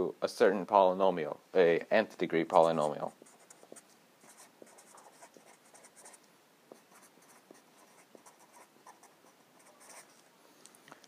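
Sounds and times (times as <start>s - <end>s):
marker writing on paper: 2.5s - 10.2s.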